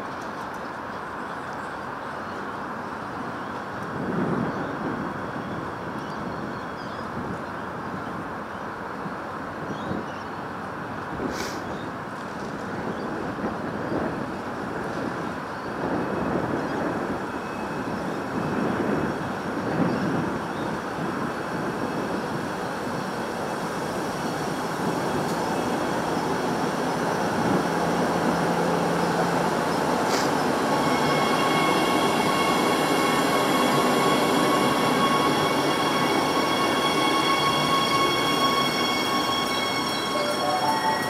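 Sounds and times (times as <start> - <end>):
train rumbling past: 10.8 - 41.0
high-pitched train squeal: 28.8 - 41.0.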